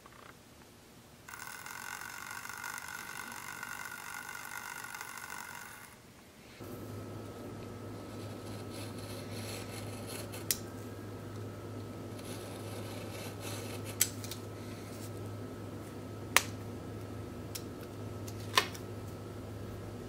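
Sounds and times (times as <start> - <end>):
low hum: 6.6 - 20.0.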